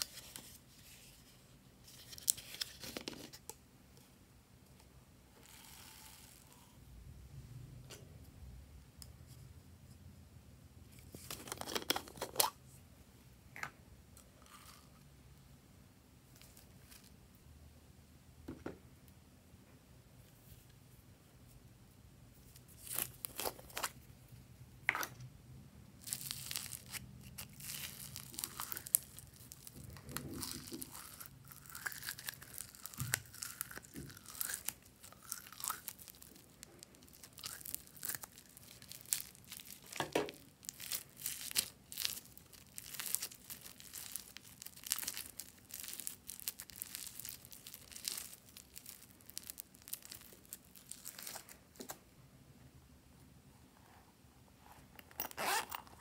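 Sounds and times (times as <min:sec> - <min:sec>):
foam bead slime crackling: 0:26.0 - 0:51.6.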